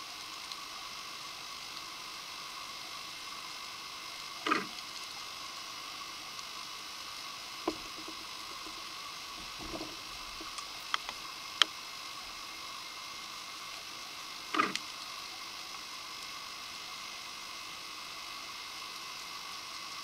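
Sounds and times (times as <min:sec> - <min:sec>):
underwater recording hiss: 0:00.0 - 0:20.0
knocks and sharp clicks: 0:07.7 - 0:08.8, 0:09.4 - 0:11.1.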